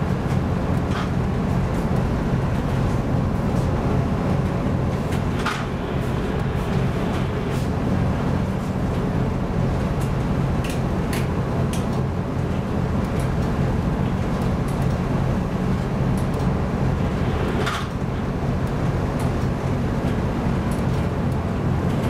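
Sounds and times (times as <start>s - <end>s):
ship engine drone: 0.0s - 22.0s.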